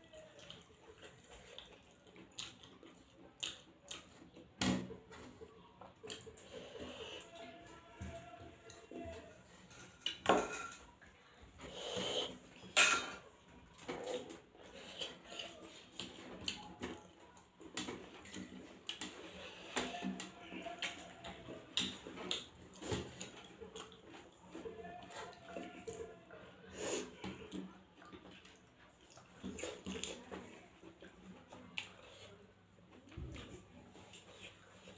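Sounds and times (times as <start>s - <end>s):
chewing and mouth sounds: 0.1s - 4.6s, 13.7s - 32.5s.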